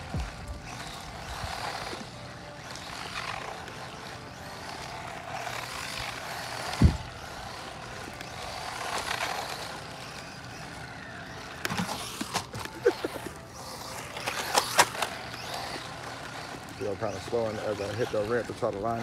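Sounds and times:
rc truck motor whine: 0:00.0 - 0:19.0
low thump: 0:06.8 - 0:07.1.

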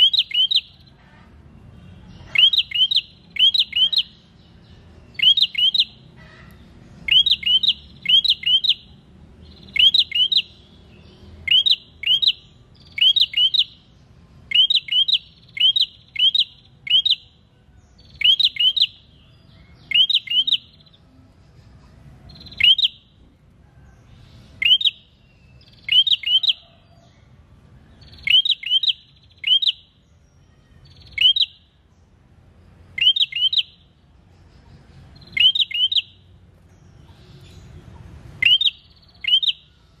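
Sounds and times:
bird sharp rising chirps: 0:02.2 - 0:06.0, 0:07.0 - 0:13.9, 0:14.5 - 0:17.3, 0:18.0 - 0:21.0, 0:22.3 - 0:23.2, 0:24.3 - 0:26.7, 0:27.8 - 0:31.9, 0:32.8 - 0:40.0.

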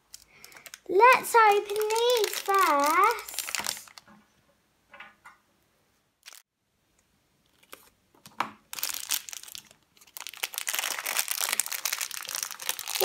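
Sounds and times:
foil wrapper crinkling and tearing: 0:00.0 - 0:04.0, 0:06.2 - 0:06.4, 0:08.7 - 0:13.0.

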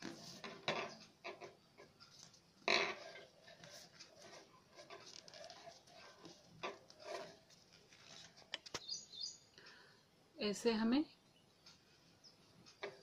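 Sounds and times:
paper rustling and crinkling: 0:03.4 - 0:08.8.

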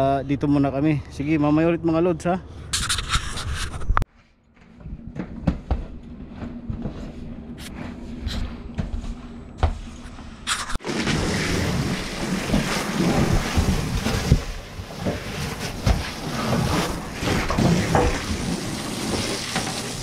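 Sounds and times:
hose spraying water into metal gutter: 0:10.8 - 0:20.0.

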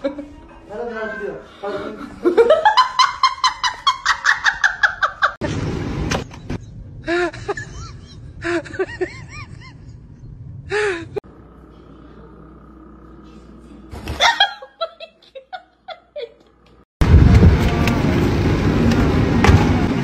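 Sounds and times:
woman laughing high-pitched: 0:14.2 - 0:16.6.

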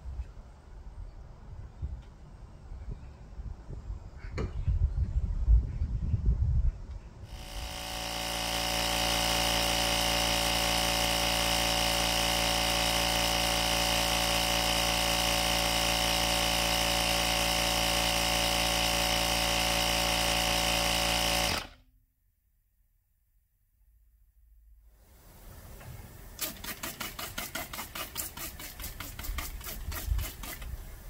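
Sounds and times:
tire inflator compressor running: 0:07.3 - 0:21.9, 0:26.4 - 0:31.0.

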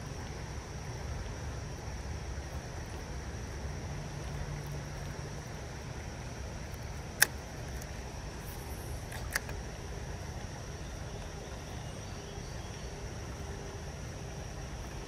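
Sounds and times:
insects droning: 0:00.0 - 0:15.0
shallow creek rushing: 0:00.0 - 0:15.0
sharp clicks: 0:06.8 - 0:07.9, 0:09.1 - 0:09.6.

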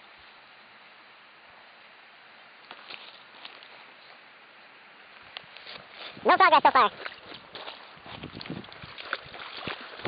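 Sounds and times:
river water rushing: 0:05.8 - 0:10.0.

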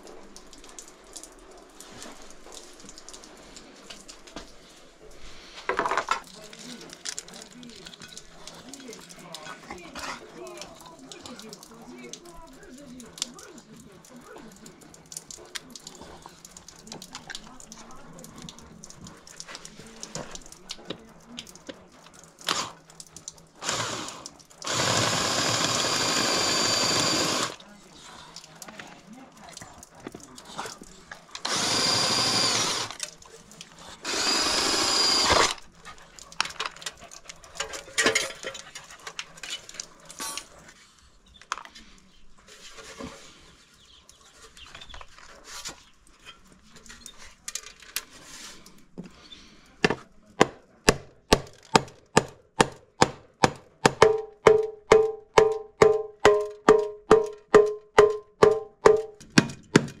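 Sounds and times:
cordless drill drilling metal: 0:23.6 - 0:27.6, 0:31.4 - 0:33.0, 0:34.0 - 0:35.6
mallet striking metal silencer: 0:54.0 - 0:59.1.

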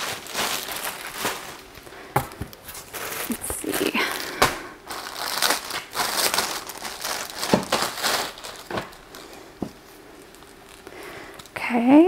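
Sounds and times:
packaging rustling and crackling: 0:00.0 - 0:12.0.

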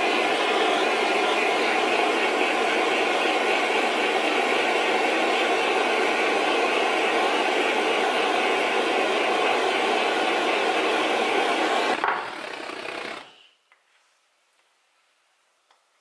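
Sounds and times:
blowtorch flame hissing: 0:00.0 - 0:12.0.

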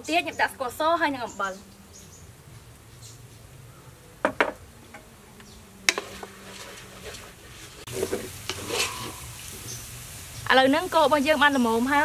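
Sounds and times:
faint drone of insects: 0:00.0 - 0:12.0
wooden spatula stirring rice in pot: 0:05.9 - 0:11.0.

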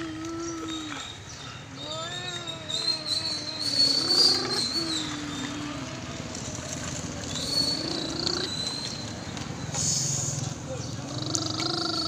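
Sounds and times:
child humming like engine: 0:00.0 - 0:08.6, 0:11.1 - 0:12.0.

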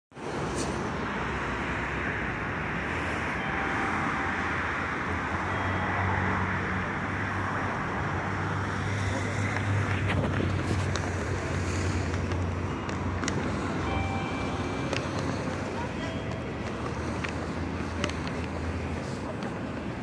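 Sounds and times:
city street traffic: 0:00.1 - 0:20.0.

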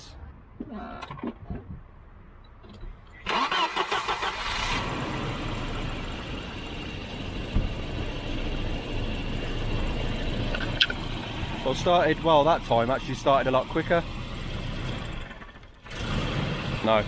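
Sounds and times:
car engine starting and idling: 0:02.4 - 0:17.0
brief thump: 0:07.5 - 0:07.8.

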